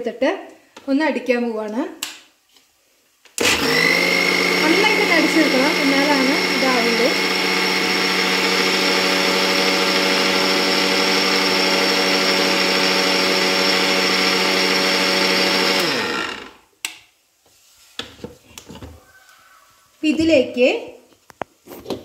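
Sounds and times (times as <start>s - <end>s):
mixer grinder motor whine: 3.4s - 16.6s.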